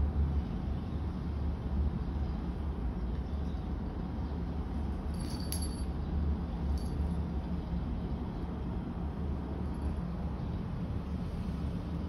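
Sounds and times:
low background rumble: 0:00.0 - 0:12.0
collar bell tinkling: 0:05.1 - 0:05.9.

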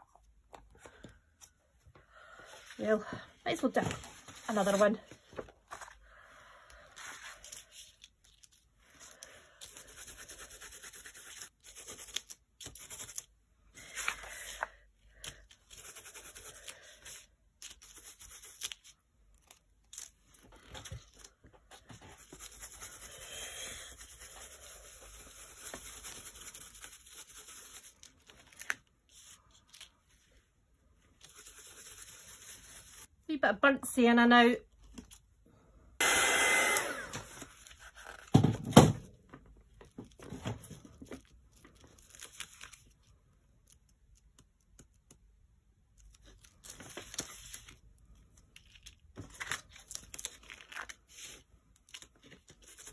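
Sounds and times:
paper rustling: 0:03.6 - 0:06.0, 0:24.0 - 0:30.4, 0:39.8 - 0:43.0, 0:46.0 - 0:52.9
sponge dabbing through stencil: 0:09.6 - 0:13.2, 0:21.8 - 0:28.1.

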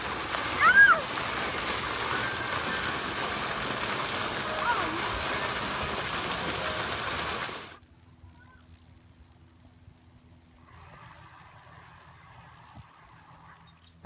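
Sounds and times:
loud rush of noise: 0:00.0 - 0:07.8
high-pitched insect trill: 0:07.8 - 0:14.0.

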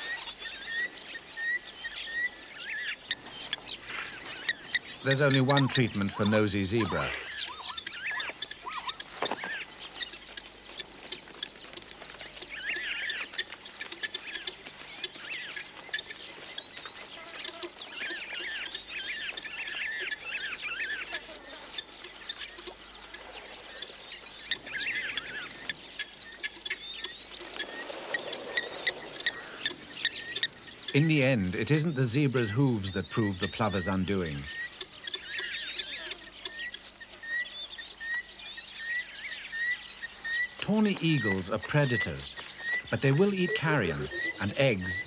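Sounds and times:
plovers calling sharp metallic notes: 0:03.5 - 0:09.0, 0:28.5 - 0:36.3, 0:40.6 - 0:45.0.

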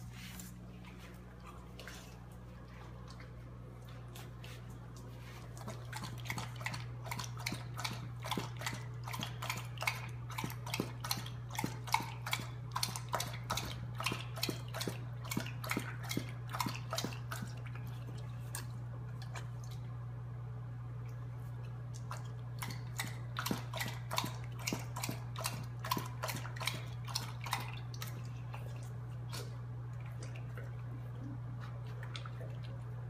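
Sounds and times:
steady low hum: 0:00.0 - 0:33.0
dog lapping water: 0:00.9 - 0:19.9, 0:21.7 - 0:33.0.

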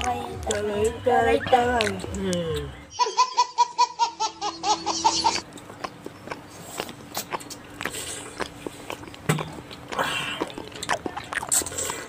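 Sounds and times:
people chewing pineapple: 0:00.0 - 0:02.9, 0:04.8 - 0:12.0
wet mouth clicks and smacks: 0:01.8 - 0:02.2, 0:05.5 - 0:12.0.

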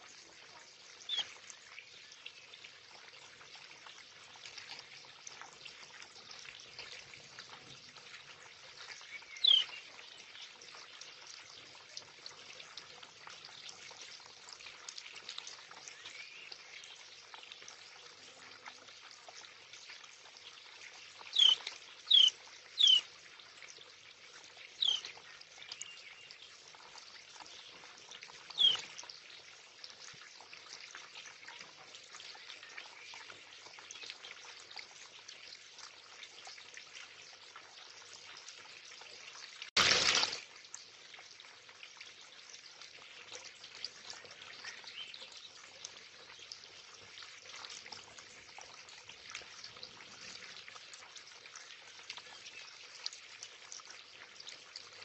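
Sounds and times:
water feature trickling: 0:00.0 - 0:55.0
sparrow chirping: 0:09.4 - 0:09.8, 0:21.4 - 0:23.0, 0:24.8 - 0:25.0, 0:28.6 - 0:28.8.

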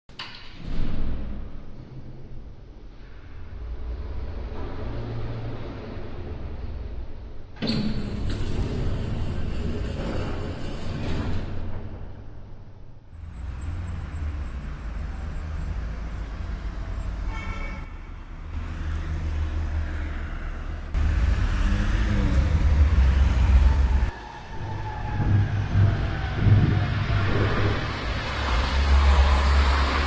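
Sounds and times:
traffic rumble: 0:11.8 - 0:30.0
car horn toot: 0:17.2 - 0:18.2.

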